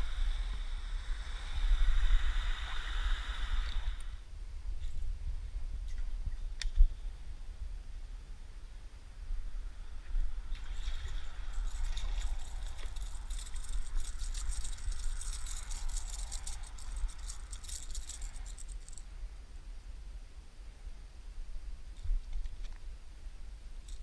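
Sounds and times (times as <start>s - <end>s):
fishing tackle rattling and clicking: 10.8s - 19.0s.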